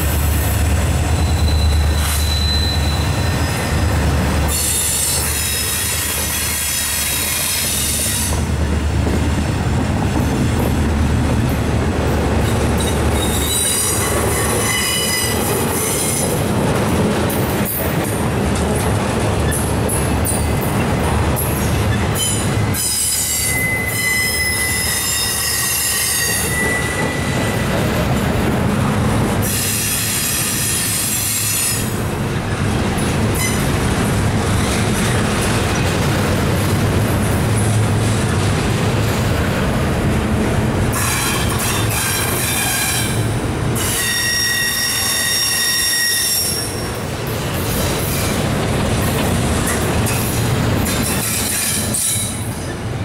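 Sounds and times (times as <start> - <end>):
freight train wheels roaring on rail: 0.0 - 53.0
high ringing wheel squeal: 1.1 - 5.9, 13.1 - 16.2, 22.2 - 27.6, 43.8 - 46.9.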